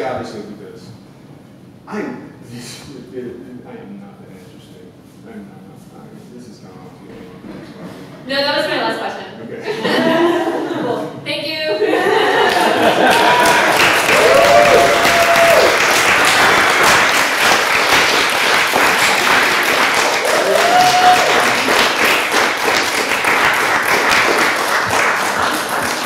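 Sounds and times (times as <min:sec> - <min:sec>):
audience applauding: 0:12.0 - 0:26.0
short cheers: 0:12.4 - 0:15.8, 0:20.2 - 0:21.6.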